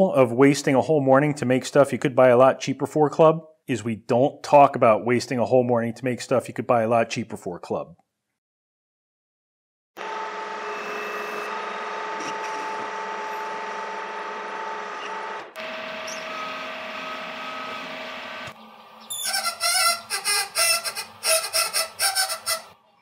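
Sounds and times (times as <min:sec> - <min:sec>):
lathe hum with gear whine: 0:10.0 - 0:19.1.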